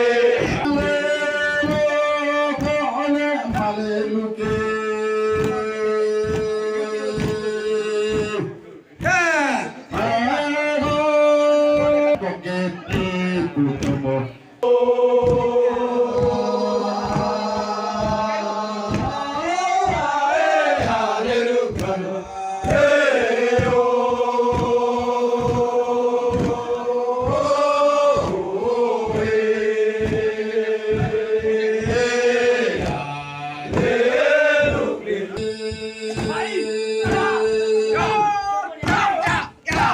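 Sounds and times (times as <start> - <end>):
men chanting in long held notes: 0.0 - 13.6, 14.6 - 39.9
steady low beat: 0.0 - 38.3
voice on a microphone: 0.4 - 14.6.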